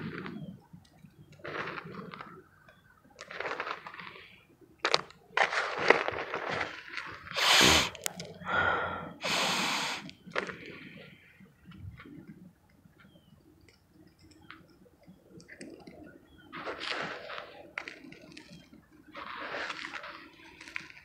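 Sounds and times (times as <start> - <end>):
mothballs crunching: 3.2 - 4.2, 4.8 - 8.2
sharp sniffs: 7.4 - 8.0, 9.2 - 10.1.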